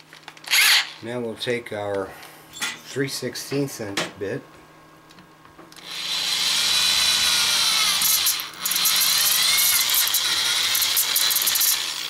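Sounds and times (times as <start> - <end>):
electric drill boring through aluminium: 0.5 - 1.0, 5.8 - 12.0.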